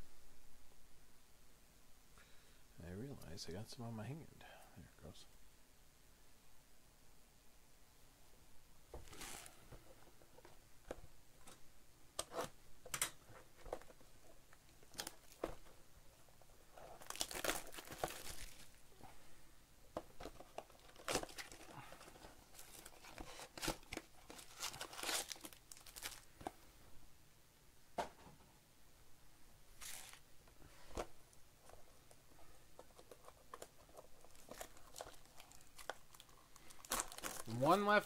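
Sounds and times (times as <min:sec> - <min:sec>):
foil wrappers crinkling: 0:16.8 - 0:18.8, 0:20.2 - 0:26.4, 0:33.0 - 0:37.8
foil tearing: 0:17.0 - 0:18.7, 0:22.6 - 0:26.3.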